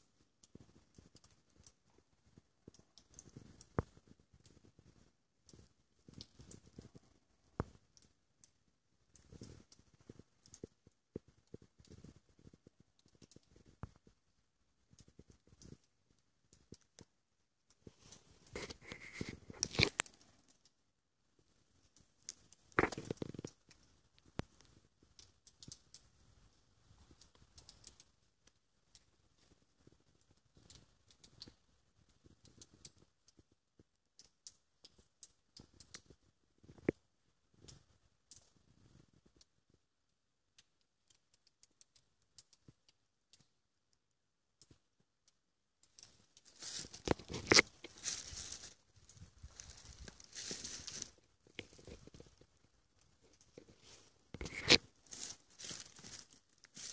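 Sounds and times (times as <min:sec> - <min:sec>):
faint ticks: 0:00.3 - 0:14.2, 0:21.4 - 0:37.0, 0:37.6 - 0:39.8, 0:40.5 - 0:56.9
footsteps on stone rubble: 0:46.5 - 0:52.4, 0:53.6 - 0:56.9.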